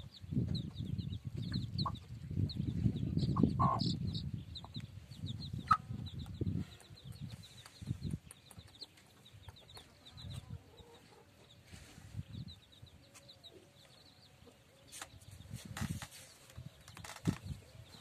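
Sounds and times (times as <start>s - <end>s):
chicks peeping: 0.0s - 18.0s
hen clucking: 0.5s - 11.6s.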